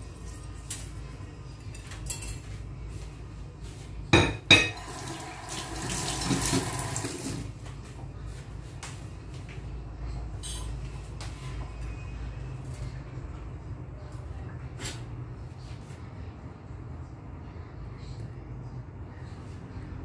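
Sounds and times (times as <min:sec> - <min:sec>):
dishes clattering: 0:04.2 - 0:05.1.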